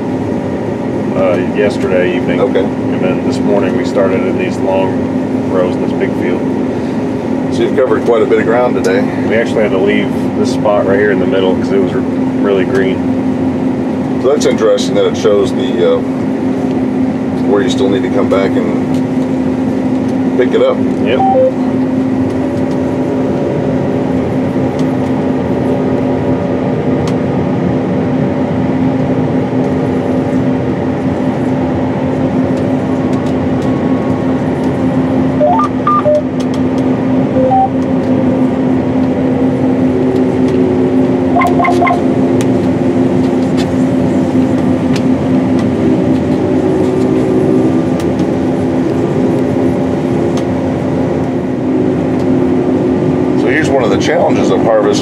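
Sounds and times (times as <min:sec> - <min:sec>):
combine harvester drone: 0:00.0 - 0:55.0
constant hum: 0:00.0 - 0:55.0
short electronic beeps: 0:21.1 - 0:21.6, 0:35.4 - 0:36.3, 0:37.4 - 0:37.8, 0:41.4 - 0:42.1.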